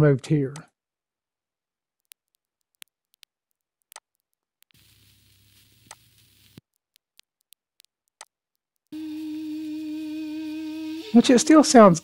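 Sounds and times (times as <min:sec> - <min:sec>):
vinyl clicks and pops: 0:02.1 - 0:09.0
faint hiss: 0:04.7 - 0:06.6, 0:09.0 - 0:12.0.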